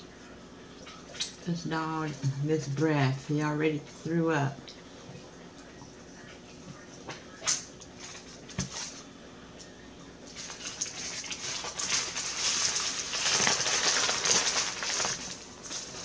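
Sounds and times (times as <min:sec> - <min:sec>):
paper wrapper crinkling: 0:10.3 - 0:16.0.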